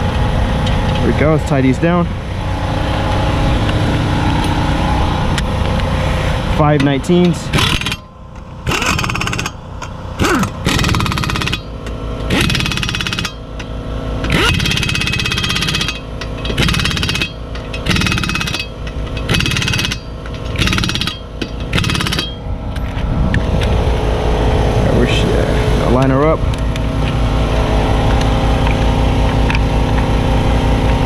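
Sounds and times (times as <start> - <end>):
steady mechanical noise: 0.0 - 31.0
impact wrench hammering: 6.6 - 22.5.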